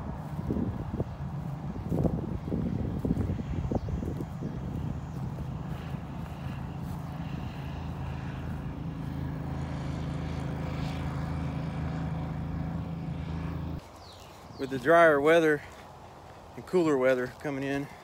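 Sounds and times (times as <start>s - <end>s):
low engine drone: 0.0s - 13.8s.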